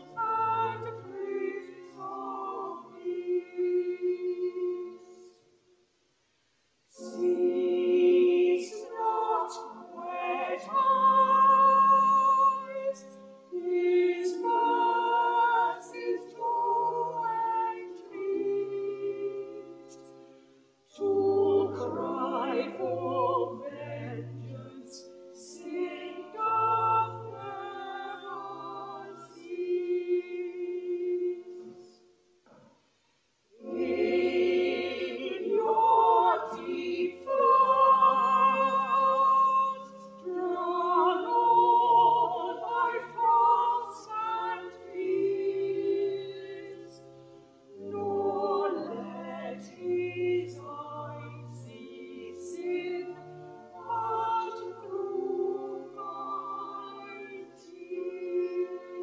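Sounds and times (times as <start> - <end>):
church choir singing: 0.0 - 5.4, 6.9 - 32.1, 33.5 - 59.0
pipe organ: 33.6 - 59.0.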